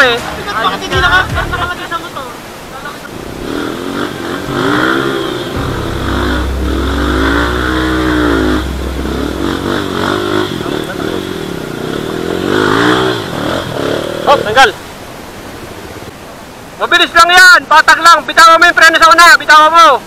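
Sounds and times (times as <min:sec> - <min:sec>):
dirt bike engine revving: 0:03.2 - 0:14.4.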